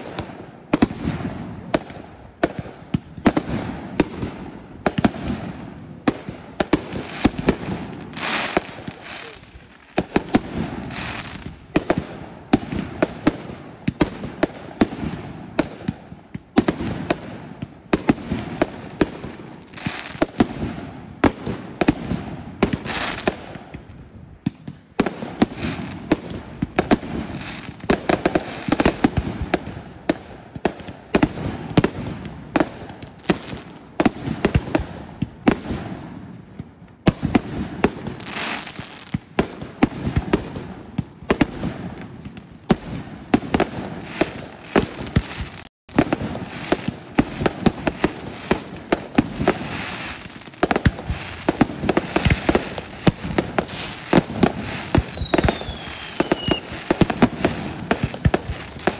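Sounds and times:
fireworks bangs: 0.0 - 58.9
fireworks crackling and hiss: 0.0 - 58.9.

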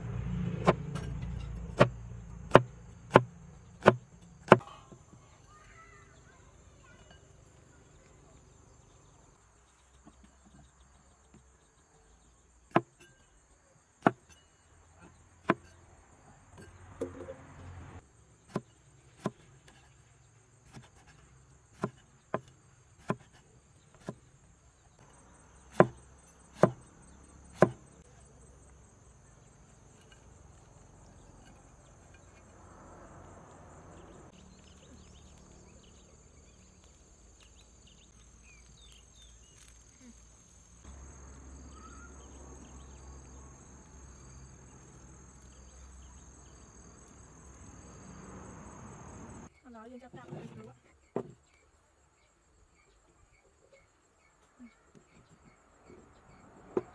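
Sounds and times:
insects buzzing: 0.0 - 56.9
knife chopping on wooden board: 1.7 - 4.7, 18.5 - 19.9, 20.7 - 21.2, 21.8 - 24.3, 25.7 - 26.9, 27.5 - 28.0.

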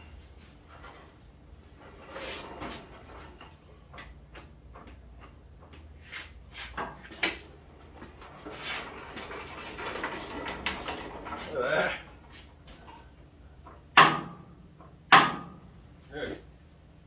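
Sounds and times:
heavy metal clunking and scraping: 6.4 - 15.7.

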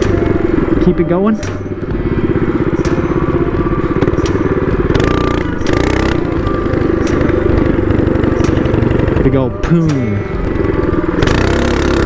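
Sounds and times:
mini bike engine at high revs: 4.8 - 9.4, 10.5 - 12.0.

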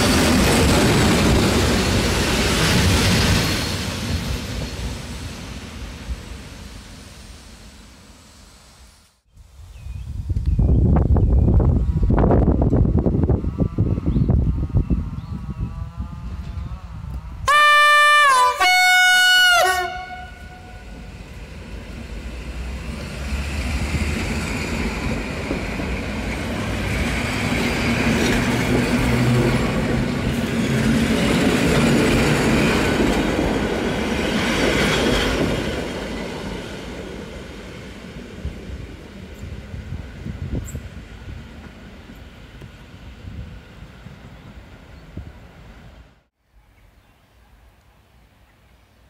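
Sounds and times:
train horn blasts: 17.4 - 21.1.

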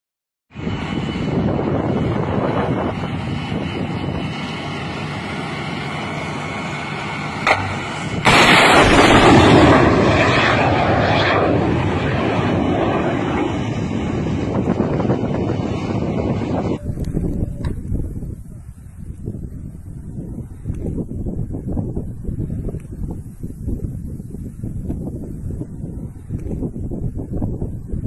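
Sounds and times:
missile rushing roar: 0.6 - 16.8
short sharp crack: 7.4 - 9.4.

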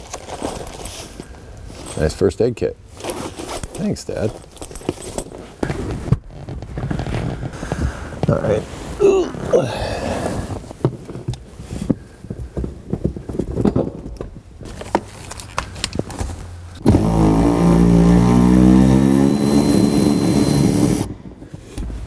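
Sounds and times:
cordless power tool running: 16.8 - 21.2.

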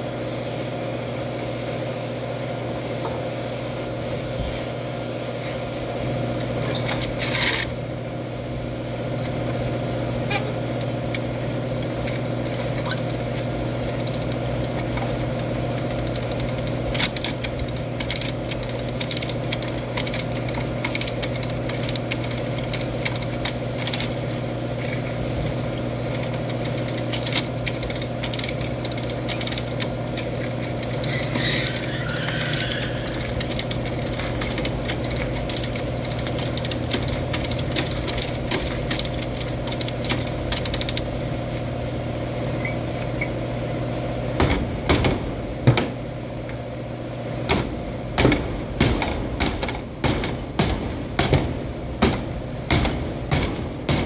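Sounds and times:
engine-like drone: 10.3 - 41.6
chain puller ratcheting clicks: 11.8 - 24.2, 26.1 - 41.0
sharp knocks: 47.5 - 54.0.

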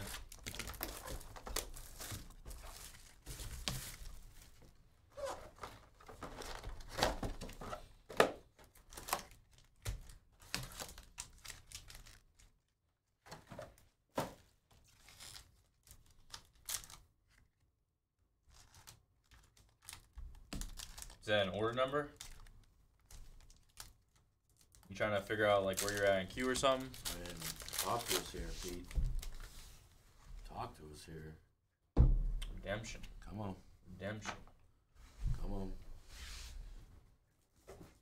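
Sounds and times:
packaging ripping and rustling: 0.0 - 4.1, 8.8 - 12.5, 14.9 - 17.0, 18.5 - 21.3, 22.2 - 24.9, 25.6 - 29.5.

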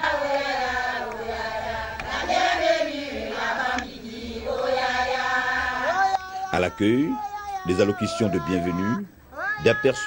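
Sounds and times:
women chanting in chorus: 0.0 - 6.0.

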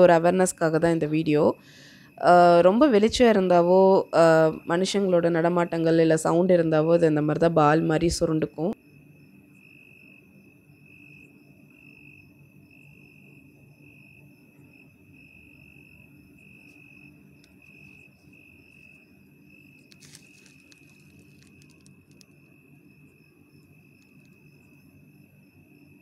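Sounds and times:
crickets chirping: 0.0 - 26.0
clicks and rustles: 19.8 - 22.3.

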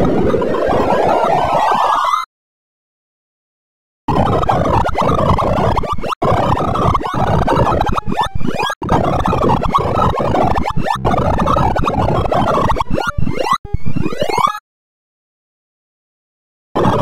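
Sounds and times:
rapid electronic beeps: 4.1 - 14.6.

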